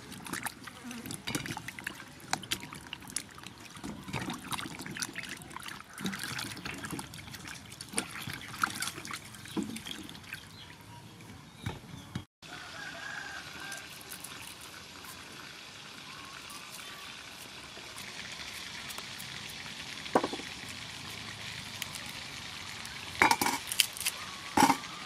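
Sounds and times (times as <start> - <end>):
water splashing and trickling: 0.0 - 11.5, 12.6 - 25.0
knocks in metal basin: 20.2 - 20.5, 23.2 - 23.6, 24.6 - 24.9.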